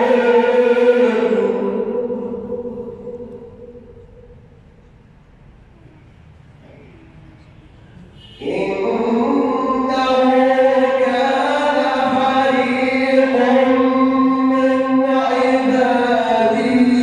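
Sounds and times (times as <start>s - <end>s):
man chanting melodically: 0.0s - 3.9s, 8.2s - 17.0s.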